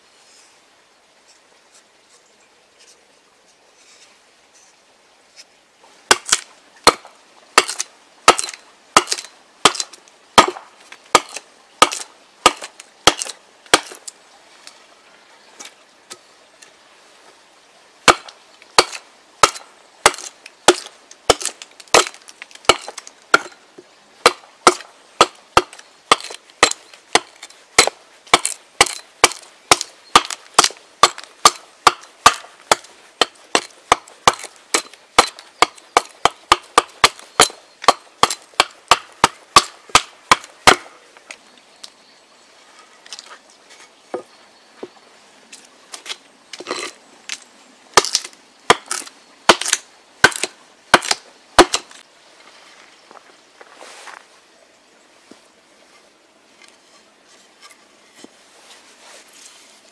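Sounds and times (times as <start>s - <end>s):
hatchet chopping wood: 6.1s - 14.0s, 18.0s - 23.6s, 24.2s - 40.9s, 48.0s - 52.0s.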